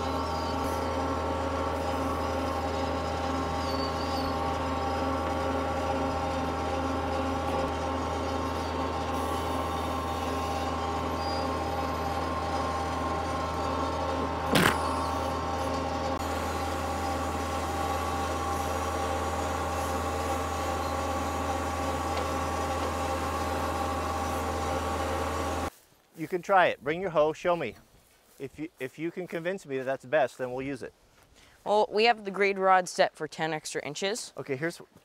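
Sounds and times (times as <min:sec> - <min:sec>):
diesel tractor engine running: 0:00.0 - 0:25.7.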